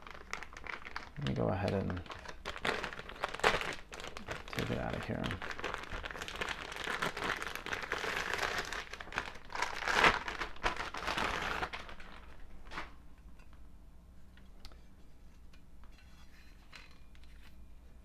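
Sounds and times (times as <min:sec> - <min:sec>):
packaging crinkling and rustling: 0:00.0 - 0:13.6.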